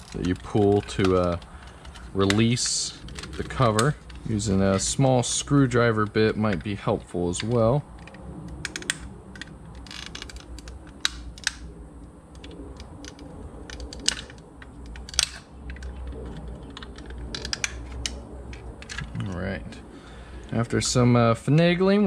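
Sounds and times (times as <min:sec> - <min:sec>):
plastic snaps: 0:07.4 - 0:11.7.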